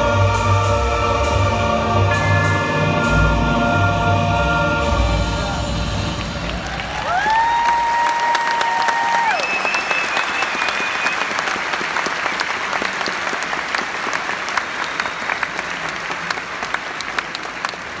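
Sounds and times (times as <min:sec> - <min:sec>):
audience applauding: 0:06.1 - 0:18.0.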